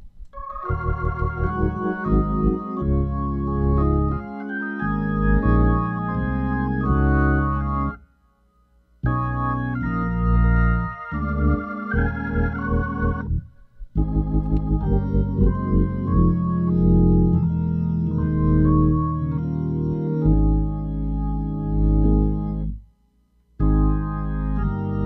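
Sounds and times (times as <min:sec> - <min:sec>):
organ playing held chords: 0:00.4 - 0:08.1, 0:09.0 - 0:22.8, 0:23.6 - 0:25.0
low bass line: 0:00.7 - 0:08.0, 0:09.0 - 0:22.8, 0:23.6 - 0:25.0.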